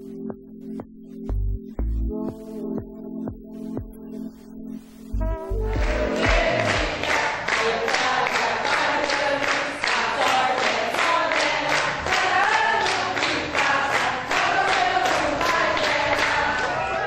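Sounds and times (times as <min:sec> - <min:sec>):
hands clapping in time: 0:05.5 - 0:16.8
group of people singing: 0:05.8 - 0:17.0.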